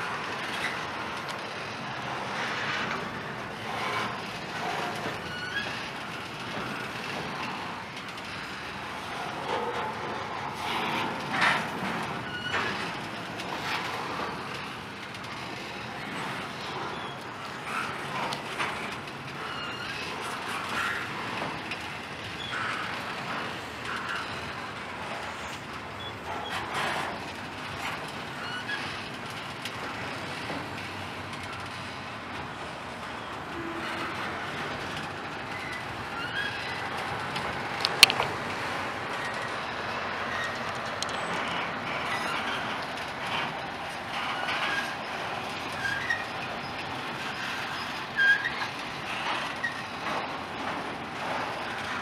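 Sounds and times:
train wheels rumbling on rails: 0.0s - 52.0s
high wheel squeals: 3.6s - 14.4s, 15.4s - 37.9s, 38.6s - 52.0s.

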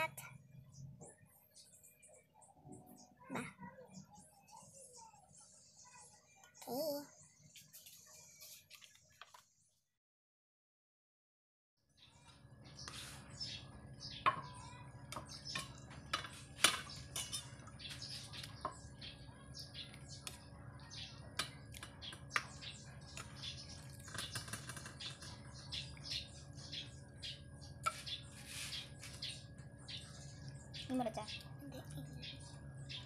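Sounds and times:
rapid bird chirps: 16.8s - 33.0s.

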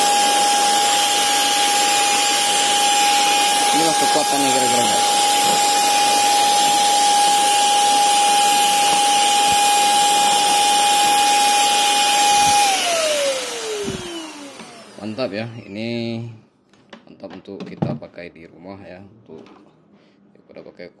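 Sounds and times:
spray gun blower whining: 0.0s - 15.8s.

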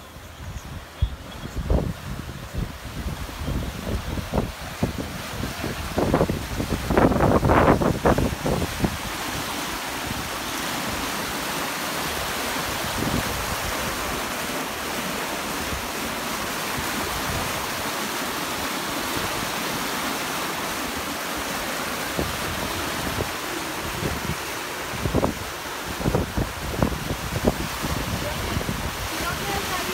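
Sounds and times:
wake water rushing and foaming: 0.0s - 29.9s
wind buffeting microphone: 0.1s - 11.1s, 12.1s - 14.2s, 22.0s - 29.9s.

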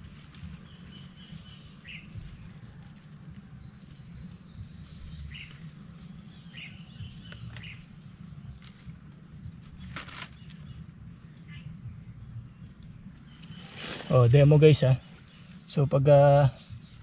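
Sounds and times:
birds chirping: 0.0s - 17.0s
low steady rumble: 0.0s - 17.0s.

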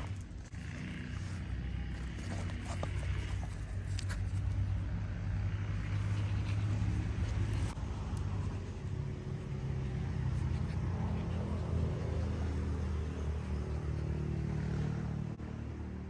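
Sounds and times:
engine running rumble: 0.0s - 15.6s.

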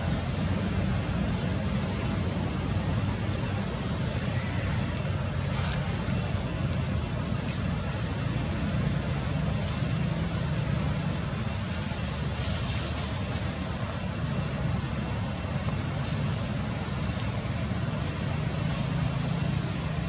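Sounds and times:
hiss: 9.1s - 13.9s, 15.9s - 20.0s.

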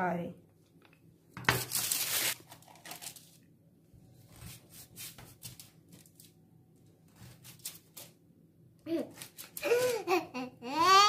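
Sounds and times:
baking paper rustling and tearing: 1.4s - 3.4s, 4.2s - 6.4s, 7.1s - 8.2s, 9.0s - 10.1s.

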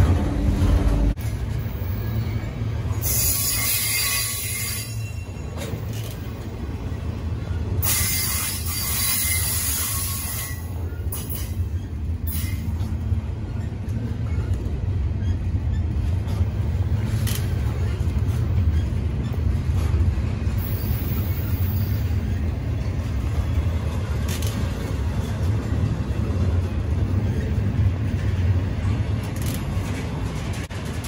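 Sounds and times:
train wheels rumbling on rail: 0.0s - 31.0s
hissing wheel screech: 3.0s - 5.4s, 7.8s - 10.7s.

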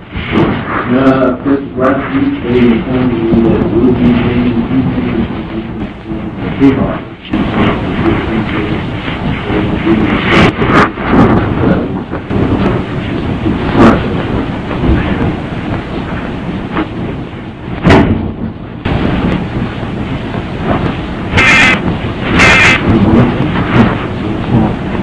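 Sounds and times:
muffled rumbling and rustling: 0.0s - 25.0s
sharp knocks: 17.8s - 22.9s.

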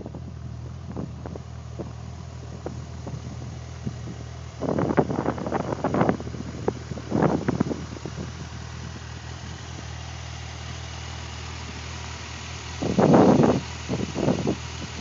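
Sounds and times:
wind gusts buffeting microphone: 0.1s - 9.0s.

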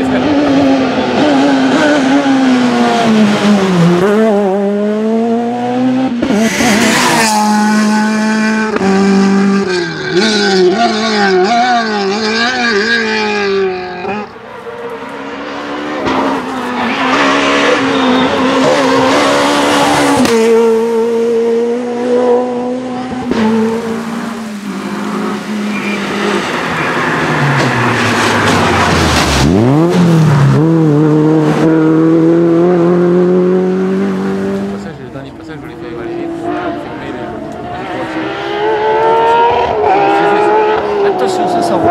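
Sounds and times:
rally car engines revving: 0.0s - 41.9s
tyre squeal: 16.8s - 19.2s, 25.7s - 28.9s.

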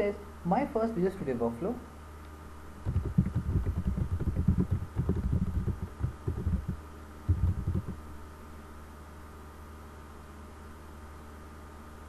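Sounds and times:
typing on computer keyboard: 2.9s - 8.0s.

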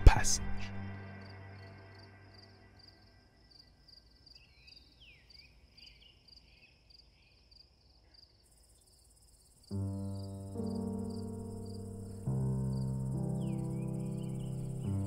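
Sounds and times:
crickets chirping: 0.6s - 15.0s
music with held low chord: 9.7s - 15.0s.

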